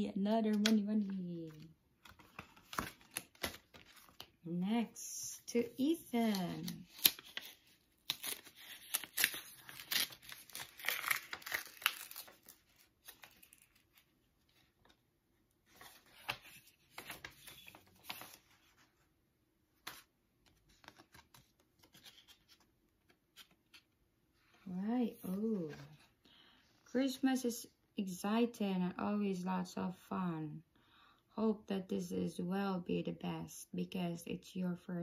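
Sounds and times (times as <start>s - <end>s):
paper envelope tearing: 6.2s - 14.0s.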